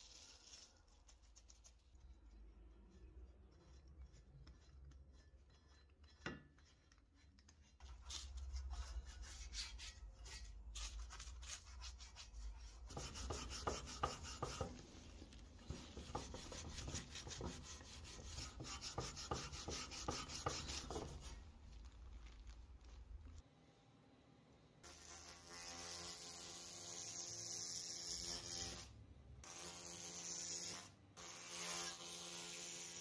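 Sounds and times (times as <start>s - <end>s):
scrubbing paint on cast iron: 0.0s - 23.4s.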